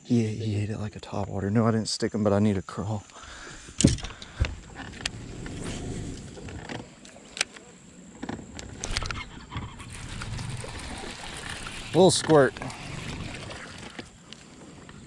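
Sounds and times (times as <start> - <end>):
fishing tackle clicks and knocks: 3.7 - 5.2
low steady rumble: 4.2 - 7.0.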